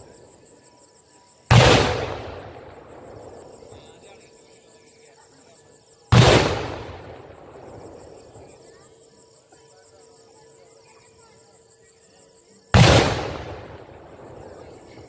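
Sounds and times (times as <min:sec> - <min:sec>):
crickets chirping: 0:00.0 - 0:15.0
loud firework bang: 0:01.5 - 0:02.9, 0:06.2 - 0:07.2.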